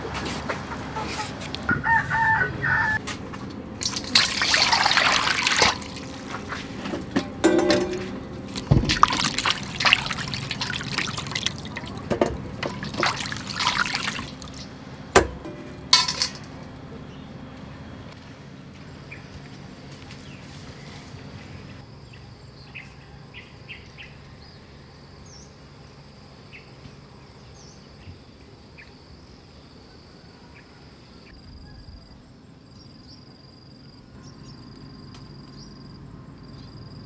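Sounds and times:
chicken calling: 0.9 - 3.0
water splashing in steel bowl: 3.8 - 6.6, 7.3 - 16.5
sharp knocks: 15.2 - 16.4.

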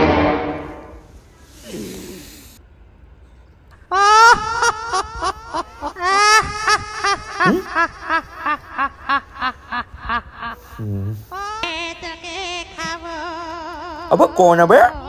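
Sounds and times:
brief low falling sound: 0.0 - 1.2
person laughing: 3.9 - 15.0.

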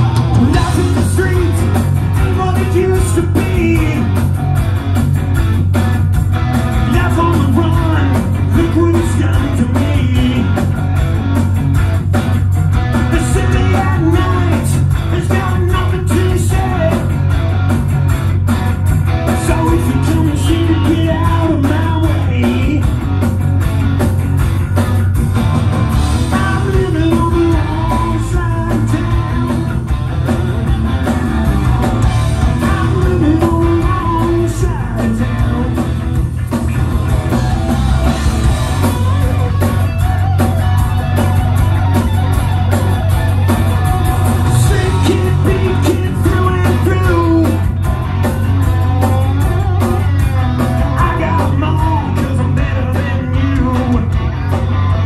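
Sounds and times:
bass guitar: 0.0 - 55.0
drums: 0.0 - 55.0
electric guitars: 0.0 - 55.0
person singing lead vocal: 0.3 - 4.1, 6.8 - 10.7, 13.0 - 17.1, 19.4 - 22.9, 26.2 - 29.6, 32.4 - 35.9, 44.5 - 47.7, 51.0 - 54.2.

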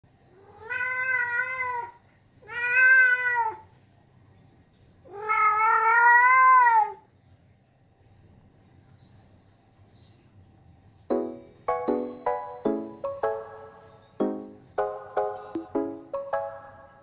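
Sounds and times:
cat meowing: 0.3 - 3.6, 5.1 - 7.0.

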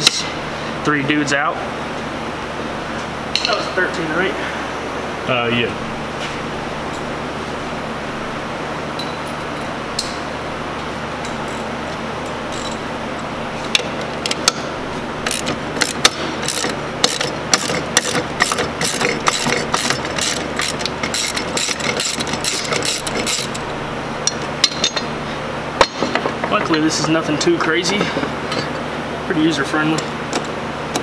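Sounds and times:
ratchet wrench clicking: 15.2 - 23.6.

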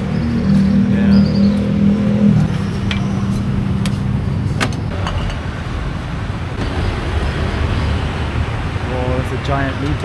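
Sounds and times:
street traffic noise: 0.0 - 10.0.

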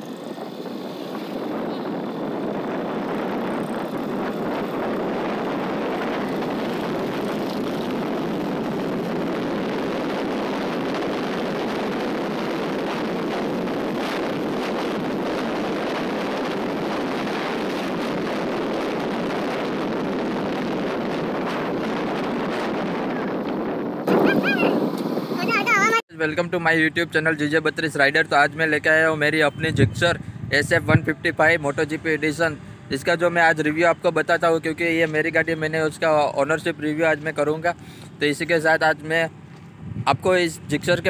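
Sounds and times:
motorcycle running noise: 0.0 - 26.0
wind rushing over microphone: 0.0 - 41.0.

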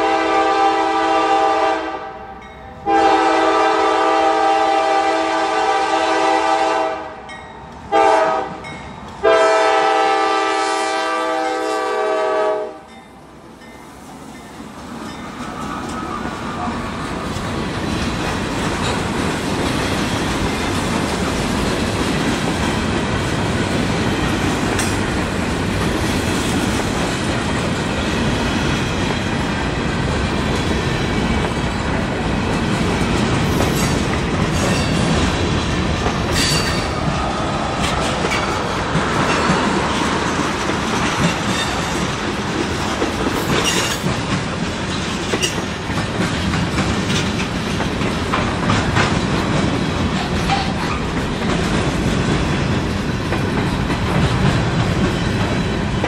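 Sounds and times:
train wheels rumbling on rails: 2.9 - 56.0
clickety-clack over rail joints: 14.4 - 56.0
sharp clanks: 36.0 - 37.1.

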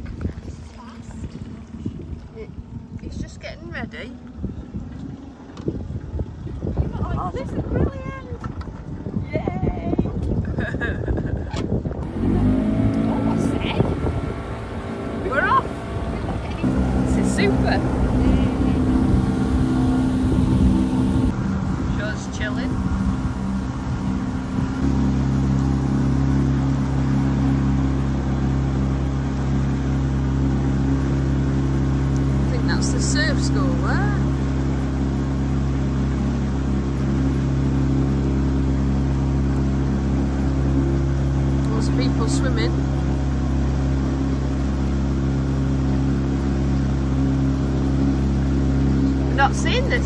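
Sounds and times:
motorboat engine running: 0.0 - 50.0
water splashing past hull: 11.3 - 50.0
wake churning: 11.8 - 50.0.

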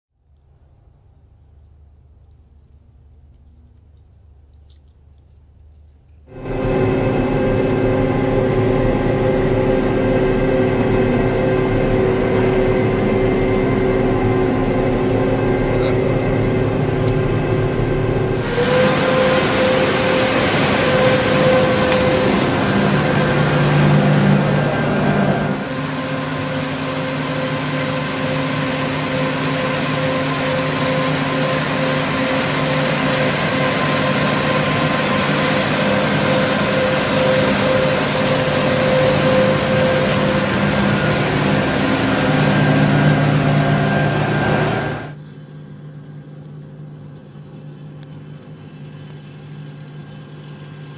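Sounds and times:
high hiss: 6.3 - 45.2
cotton picker machinery drone: 6.3 - 50.9
machine whine: 6.3 - 50.9.

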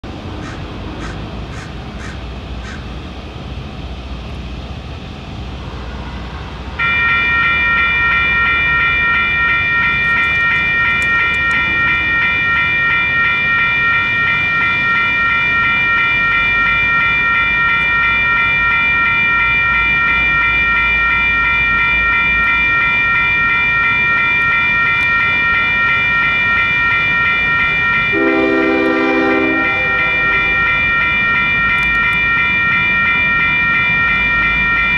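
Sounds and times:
railroad crossing bells ringing: 0.1 - 34.9
train horn: 28.1 - 30.6.

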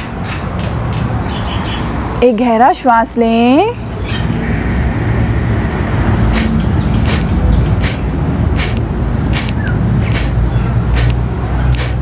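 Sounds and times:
steady low rumble: 3.3 - 12.0
forceful nasal exhalations: 6.3 - 8.0, 8.6 - 8.8, 9.4 - 10.4, 11.0 - 11.2, 11.8 - 12.0.

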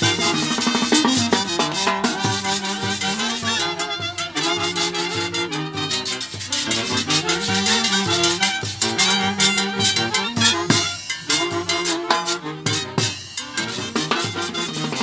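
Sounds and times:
drum kit beat: 0.0 - 15.0
saxophones and clarinet melody: 0.0 - 15.0.

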